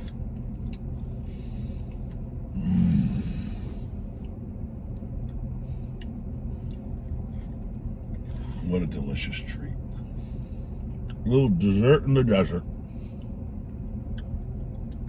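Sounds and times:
idling vehicle hum: 0.0 - 15.0.

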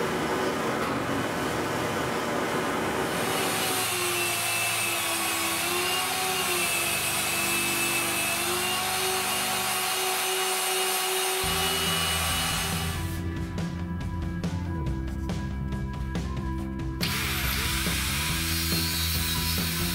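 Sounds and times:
belt sander motor whine: 2.2 - 13.3, 17.0 - 18.5.

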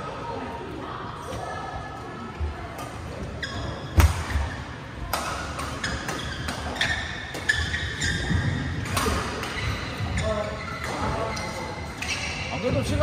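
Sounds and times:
shoes squeaking on court: 2.9 - 13.0
racket hitting shuttlecock: 4.0 - 4.5, 5.1 - 9.8.

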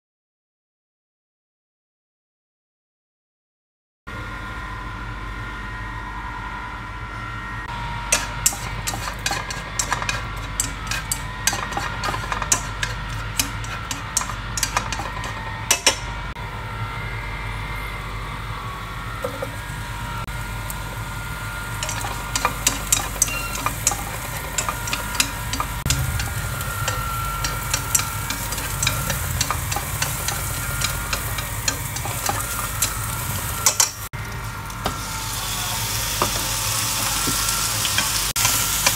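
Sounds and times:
low hum: 4.1 - 34.8
chopsticks clicking against pan: 8.1 - 16.0, 21.8 - 26.2, 26.9 - 34.0
onions sizzling in oil: 19.0 - 38.9.

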